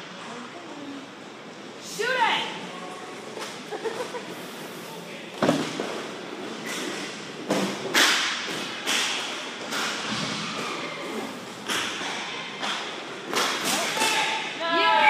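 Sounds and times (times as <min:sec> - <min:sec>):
hockey sticks and puck clacking: 0:05.6 - 0:14.4.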